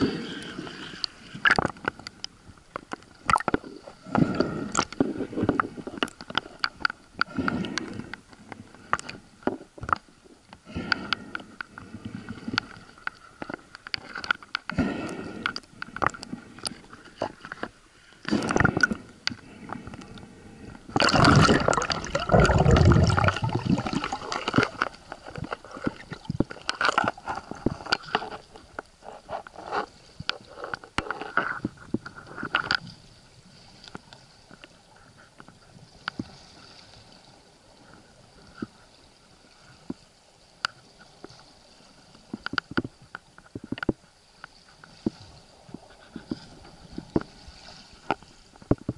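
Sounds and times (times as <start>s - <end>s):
water gurgling and rushing: 3.2s - 6.1s, 18.2s - 20.0s, 20.8s - 28.6s.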